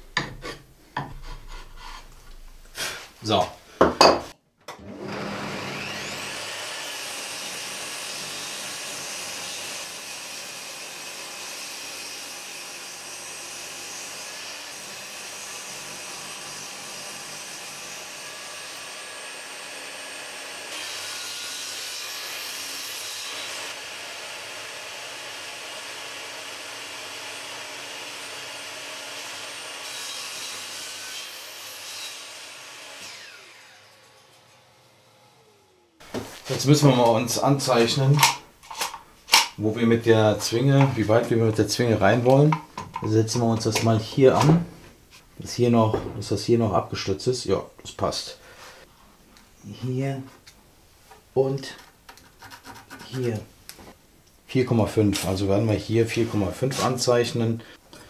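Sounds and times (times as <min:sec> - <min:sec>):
table saw cutting plywood: 0:04.7 - 0:44.8
saw winding down: 0:04.8 - 0:43.8.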